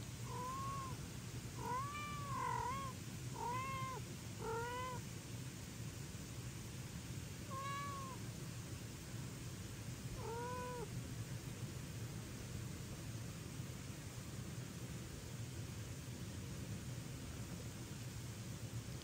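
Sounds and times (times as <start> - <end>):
cats meowing: 0.3 - 1.0, 1.6 - 5.0, 7.5 - 8.2, 10.2 - 10.9.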